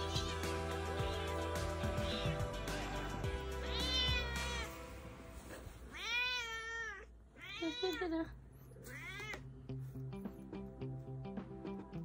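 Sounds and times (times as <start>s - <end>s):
cat meowing: 2.0s - 2.5s, 3.6s - 4.8s, 5.9s - 8.1s, 8.8s - 9.5s.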